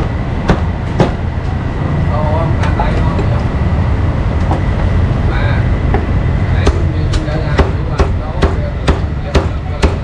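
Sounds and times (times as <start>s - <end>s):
market rumble: 0.0s - 10.0s
cleaver chopping meat: 6.6s - 10.0s.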